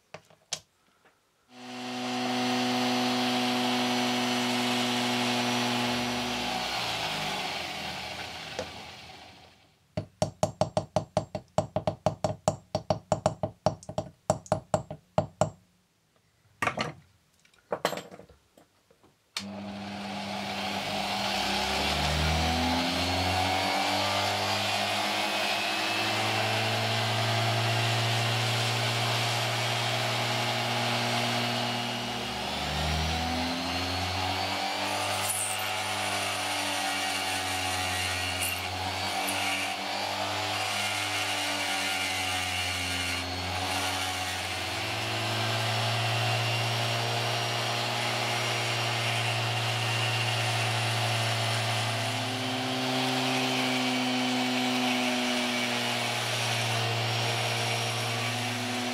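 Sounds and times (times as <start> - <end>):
rotary tool grinding stone: 31.2 - 46.0.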